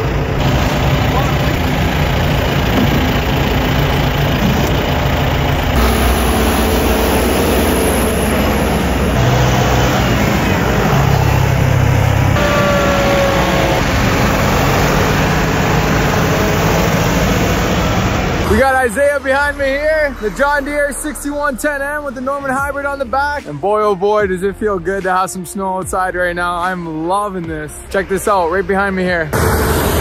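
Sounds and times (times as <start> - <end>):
falling whine: 0.0 - 22.5, 29.3 - 30.0
diesel tractors driving past: 0.0 - 23.5, 25.6 - 30.0.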